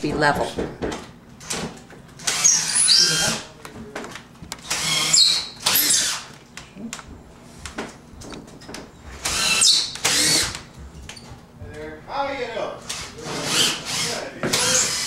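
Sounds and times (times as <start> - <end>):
power drill driving screws: 2.2 - 3.4, 4.6 - 6.3, 9.2 - 10.6, 12.8 - 15.0.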